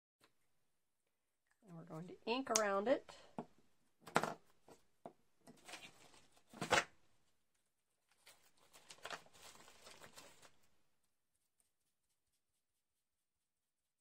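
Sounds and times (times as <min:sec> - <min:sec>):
paper and plastic rustling: 0:05.5 - 0:06.9, 0:08.1 - 0:10.7.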